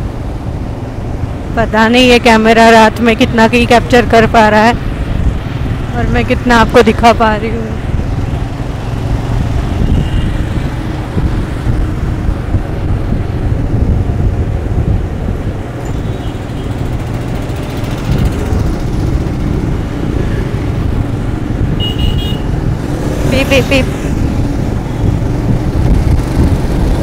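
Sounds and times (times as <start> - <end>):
traffic engines: 0.0 - 27.0
motorcycle engine riding: 4.8 - 27.0
wind on microphone: 7.6 - 27.0.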